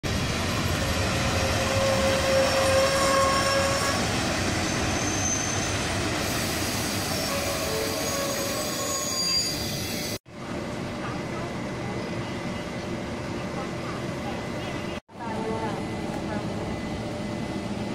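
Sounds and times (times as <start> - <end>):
train wheels rumbling on rails: 0.0 - 17.9
thin squealing tones: 7.2 - 10.0.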